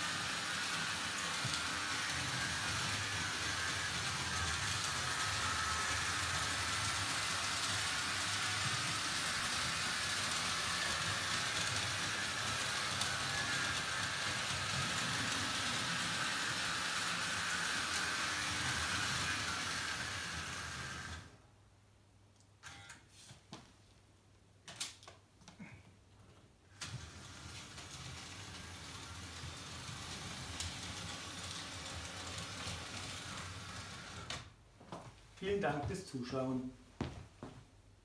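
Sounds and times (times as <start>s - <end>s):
model train rumbling on rails: 0.0s - 21.3s, 26.9s - 34.3s.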